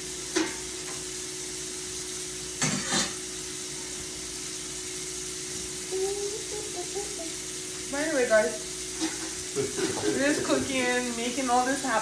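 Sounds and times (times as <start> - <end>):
constant low hum: 0.0 - 12.0
food sizzling on stove: 0.0 - 12.0
kitchen utensils clattering: 9.0 - 11.4.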